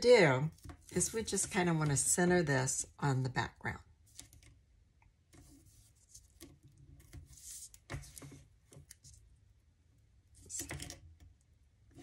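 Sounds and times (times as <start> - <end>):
cardstock rustling and sliding: 7.0 - 8.5.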